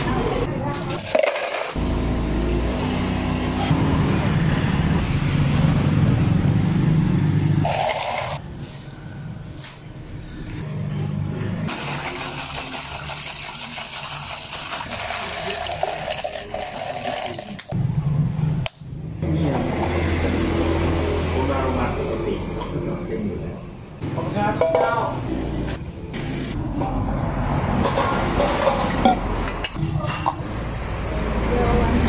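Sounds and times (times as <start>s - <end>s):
straw stirring ice: 7.6s - 8.4s, 11.7s - 17.8s
coffee poured over ice: 11.7s - 17.7s.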